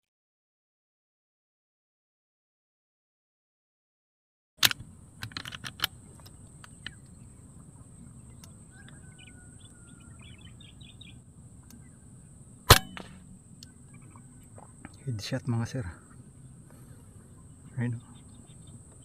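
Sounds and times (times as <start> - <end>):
quick sharp clicks: 4.6 - 7.0, 12.7 - 13.7
faint bird chirps: 5.9 - 19.0
air rifle shot crack: 12.7 - 13.4.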